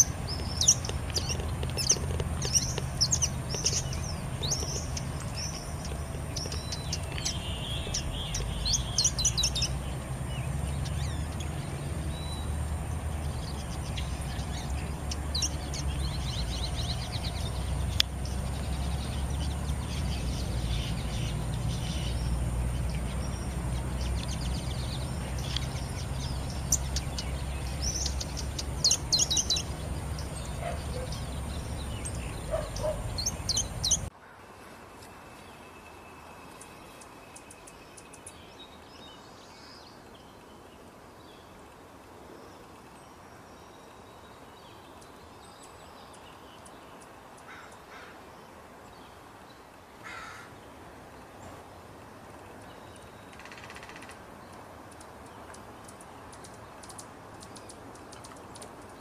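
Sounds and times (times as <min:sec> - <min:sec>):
hummingbird chips and squeaks: 0:00.0 - 0:09.8.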